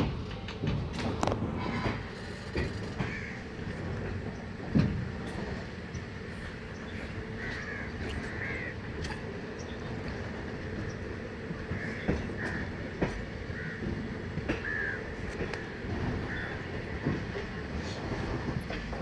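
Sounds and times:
train rumbling on track: 0:00.0 - 0:19.0
crow cawing: 0:03.0 - 0:03.5, 0:07.4 - 0:08.8, 0:13.5 - 0:13.8, 0:14.6 - 0:15.1.

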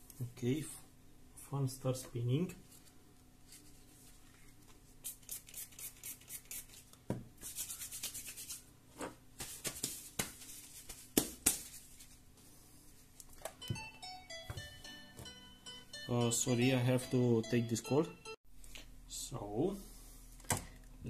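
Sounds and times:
faint computer fan hum: 0:00.0 - 0:21.0
hands rubbing and brushing objects: 0:02.6 - 0:08.7, 0:09.4 - 0:13.3.

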